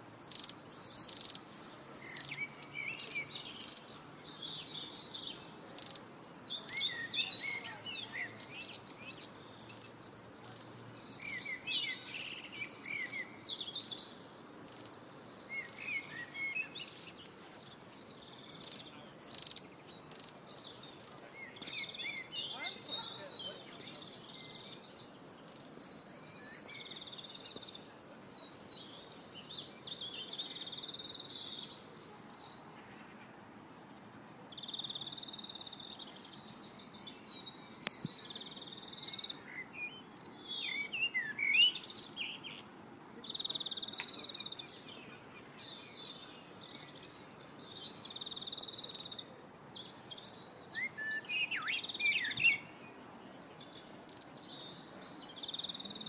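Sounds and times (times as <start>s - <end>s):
faint background hiss: 0.0s - 56.0s
songbirds singing: 0.0s - 56.0s.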